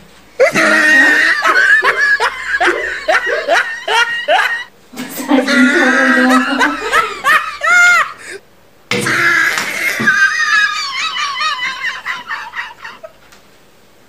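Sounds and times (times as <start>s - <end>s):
person laughing hard: 0.4s - 8.4s, 9.0s - 13.2s.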